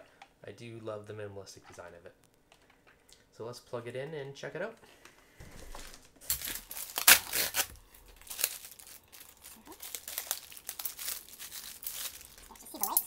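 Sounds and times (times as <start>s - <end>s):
plastic packaging crinkling: 5.7s - 13.0s.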